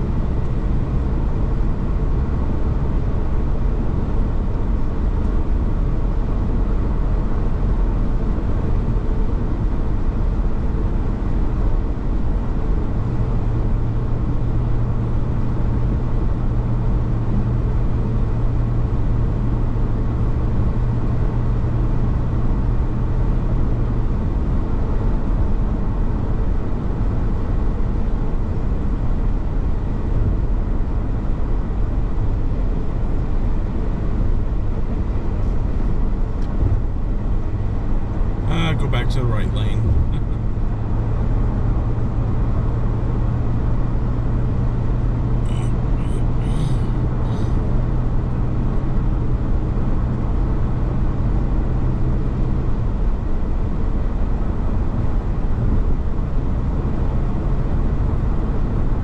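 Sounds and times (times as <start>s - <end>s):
car engine cruising: 0.0s - 11.3s, 32.2s - 54.2s
low steady hum: 0.0s - 11.5s, 32.0s - 48.4s
tyres on highway: 0.0s - 59.0s.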